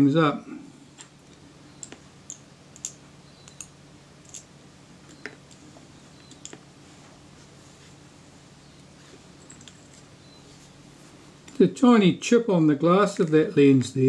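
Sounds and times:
tweezers clicking on metal parts: 1.8s - 4.5s.

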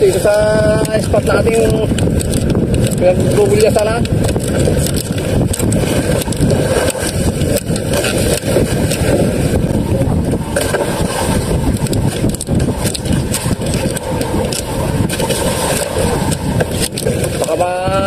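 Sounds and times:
boat engine running: 0.0s - 18.0s
waves splashing against hull: 0.0s - 18.0s
wind buffeting microphone: 0.0s - 18.0s.

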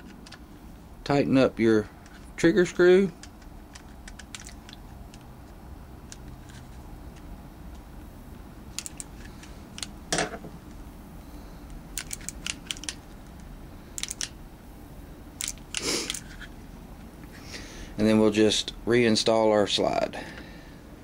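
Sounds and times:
parts handled on rubber mat: 8.8s - 10.6s
screwdriver clicking: 14.0s - 14.3s.

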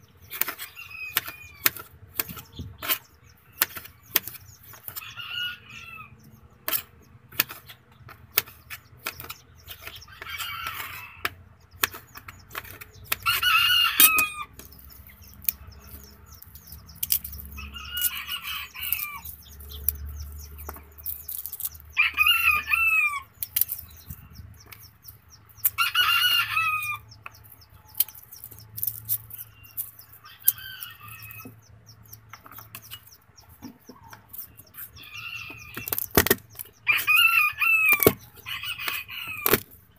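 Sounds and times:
chickens calling: 0.0s - 39.9s
rooster crowing: 5.0s - 6.2s, 13.2s - 14.5s, 17.6s - 19.3s, 21.9s - 23.3s, 25.8s - 27.1s, 36.8s - 39.6s.

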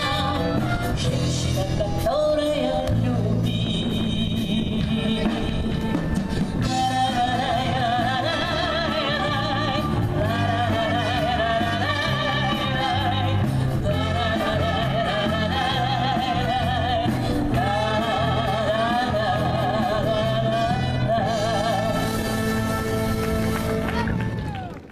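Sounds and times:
brass band playing dance music: 0.0s - 2.0s, 5.5s - 24.4s
person singing with vibrato: 0.0s - 23.3s.

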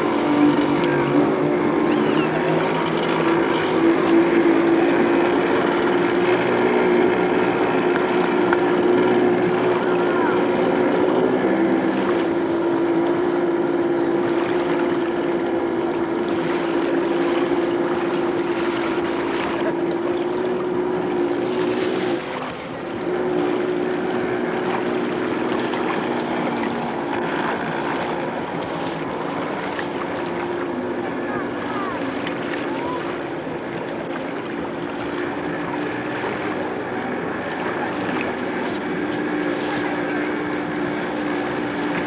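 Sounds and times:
watercraft engine running: 0.0s - 42.0s.

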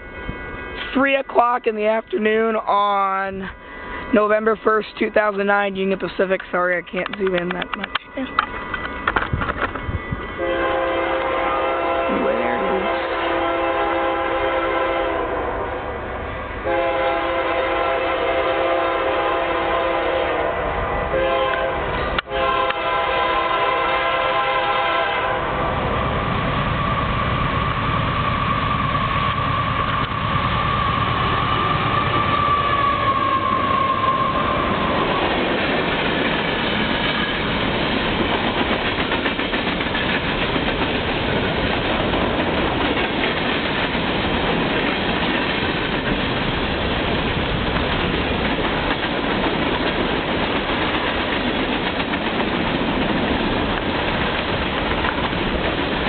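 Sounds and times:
steady high whine: 0.0s - 10.6s
locomotives passing: 0.0s - 56.0s
locomotive air horn blasts: 10.3s - 15.8s, 16.6s - 25.6s
train wheels clacking over rail joints: 34.8s - 56.0s.

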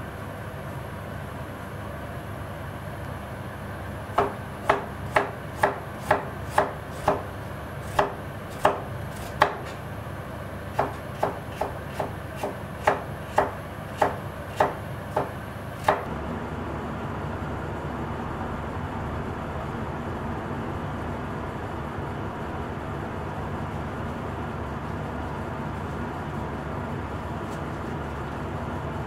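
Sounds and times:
knife slicing on cutting board: 7.9s - 9.8s, 10.8s - 16.0s.

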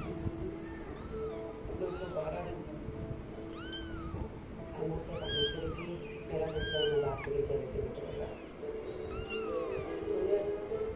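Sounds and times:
kitten mewing: 0.0s - 2.3s, 3.5s - 4.3s, 5.0s - 7.3s, 9.0s - 10.1s.

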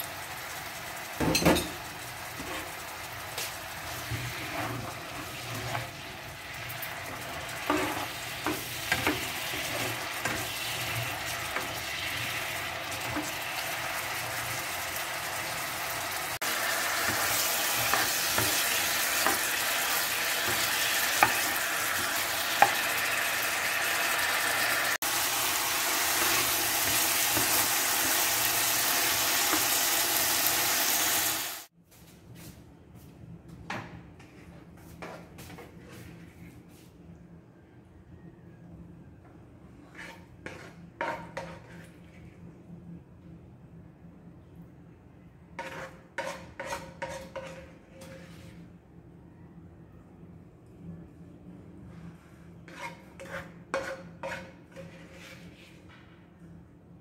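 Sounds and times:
chicken sizzling in a pan: 0.0s - 31.7s.

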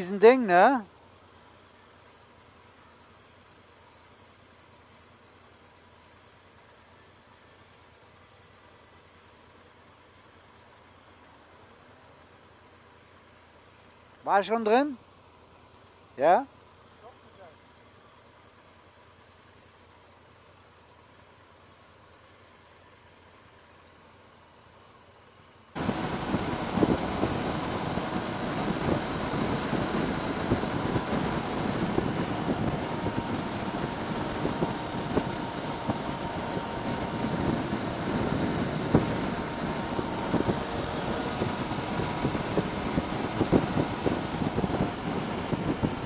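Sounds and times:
motorcycle engine cruising: 16.2s - 46.0s
wind buffeting microphone: 25.8s - 46.0s
wind rush: 25.8s - 46.0s.

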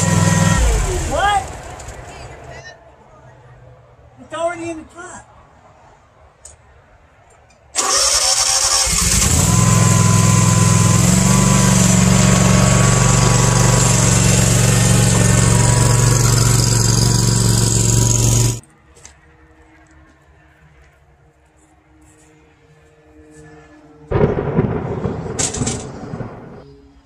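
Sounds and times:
small mower engine: 0.0s - 2.0s, 7.8s - 18.6s.

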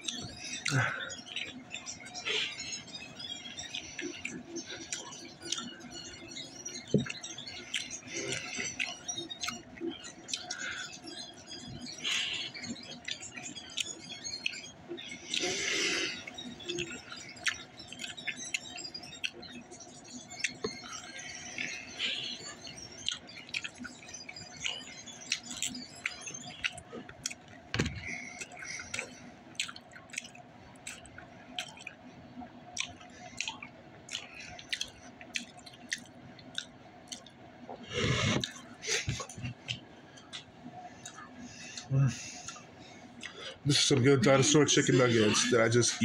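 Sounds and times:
person chewing: 15.3s - 18.2s, 26.5s - 32.0s, 32.8s - 42.6s.

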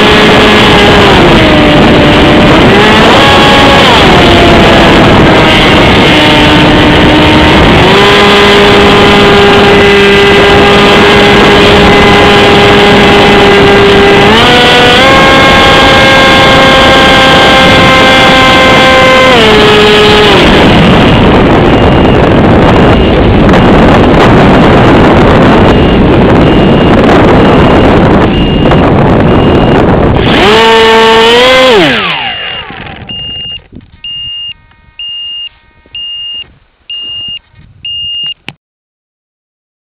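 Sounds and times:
electric motor whining: 0.0s - 36.5s
wind rushing: 0.0s - 38.2s
short high beeps: 25.6s - 29.9s, 32.2s - 38.4s.

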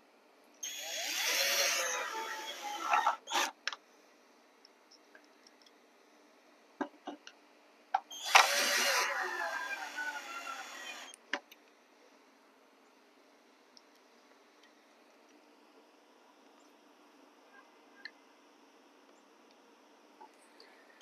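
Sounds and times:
cordless drill driving screws: 0.6s - 3.5s, 8.1s - 11.1s.

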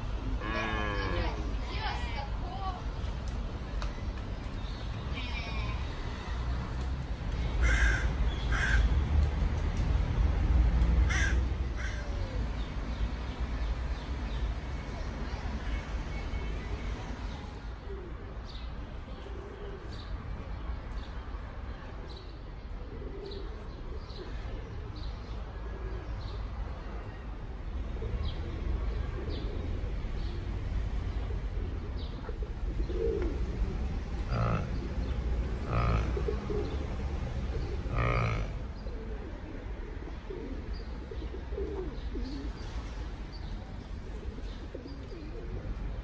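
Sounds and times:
birds chirping: 32.0s - 39.3s.

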